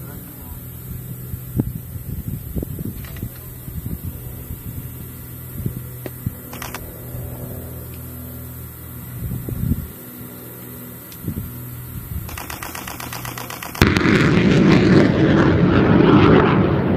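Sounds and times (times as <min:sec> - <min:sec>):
engine idling hum: 0:00.0 - 0:15.7
wind rumbling on microphone: 0:00.8 - 0:07.5, 0:09.0 - 0:10.0.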